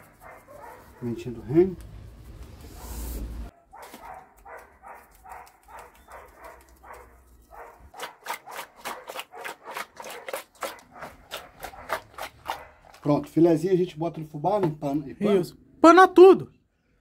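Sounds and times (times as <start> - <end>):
fish rubbing in metal pot: 7.3 - 13.1.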